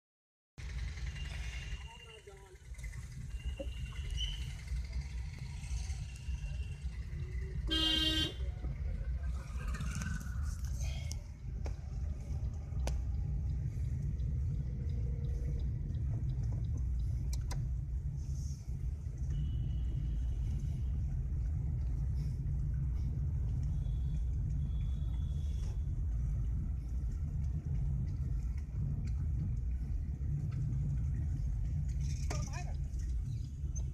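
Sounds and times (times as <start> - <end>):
car driving rumble: 0.6 - 33.9
car horn blast: 7.6 - 8.4.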